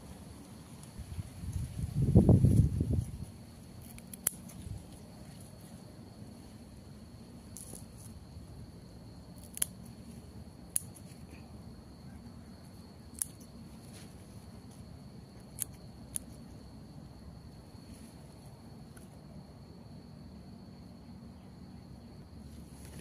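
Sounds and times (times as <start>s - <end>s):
scissors snipping stems: 3.8s - 4.7s, 10.7s - 11.2s.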